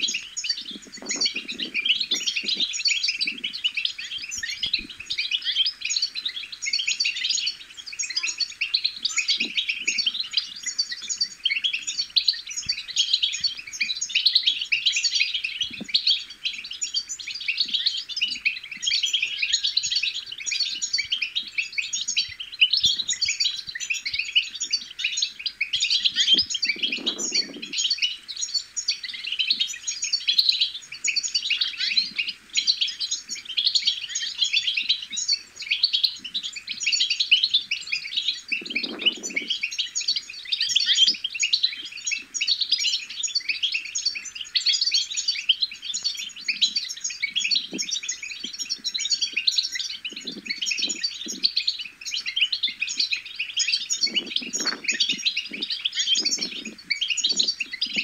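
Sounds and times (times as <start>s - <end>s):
goldfinch twittering: 0.0s - 58.0s.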